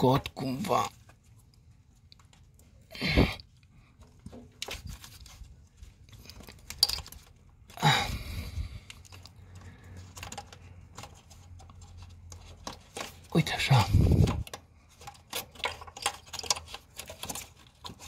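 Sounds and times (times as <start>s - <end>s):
plastic connector crackling and clicking: 10.0s - 13.3s, 14.1s - 18.0s.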